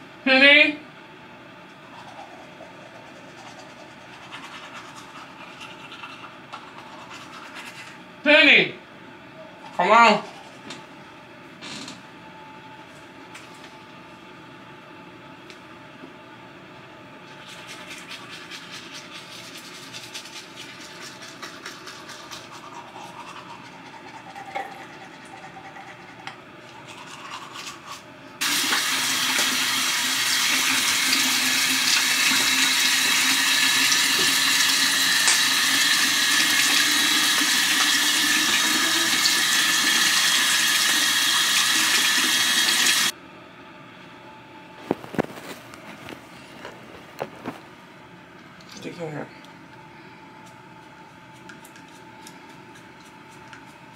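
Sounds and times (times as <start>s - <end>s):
toothbrush scrubbing: 1.9s - 8.0s, 17.3s - 28.8s, 51.3s - 53.9s
tap water running into sink: 28.4s - 43.1s.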